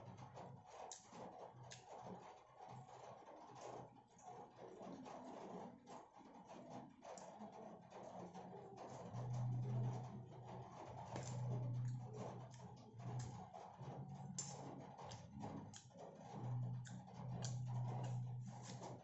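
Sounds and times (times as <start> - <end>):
chewing and mouth clicks: 1.6 - 1.9, 11.0 - 19.0
low hum: 9.0 - 19.0.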